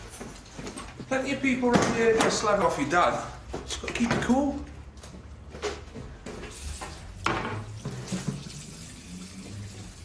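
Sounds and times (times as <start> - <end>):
tap water spurting into sink: 7.2 - 10.0.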